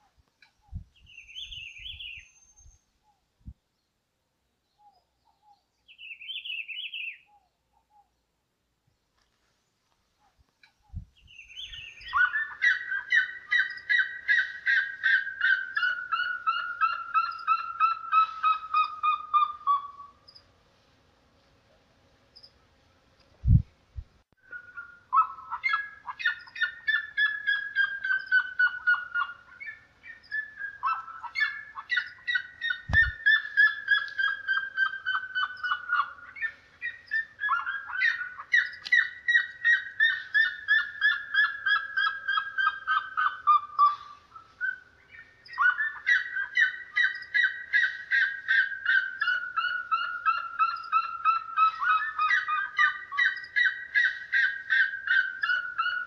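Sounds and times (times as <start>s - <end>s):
bird calling in rapid notes: 11.5s - 20.1s, 24.4s - 56.0s.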